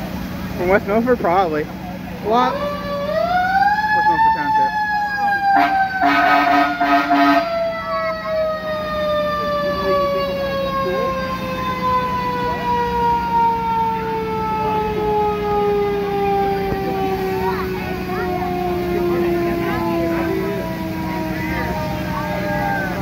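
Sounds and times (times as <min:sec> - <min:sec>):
mechanical siren winding down: 0:02.4 - 0:23.0
horn blasts: 0:05.4 - 0:07.9.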